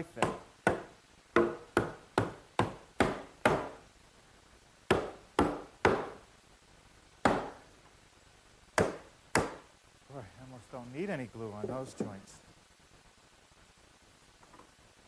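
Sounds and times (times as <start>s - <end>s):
hammer knocking on wooden frame: 0.2s - 3.8s, 4.9s - 6.2s, 7.2s - 7.6s, 8.8s - 9.6s, 11.6s - 12.2s.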